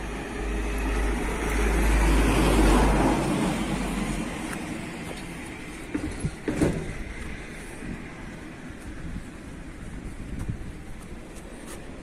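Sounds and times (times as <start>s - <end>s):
car passing by: 0.0s - 5.9s.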